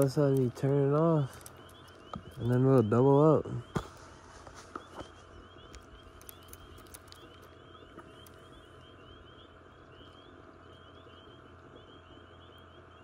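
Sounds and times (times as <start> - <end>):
light clicks: 0.0 - 2.9, 4.5 - 8.5
frogs calling: 0.0 - 13.0
low steady hum: 0.0 - 13.0.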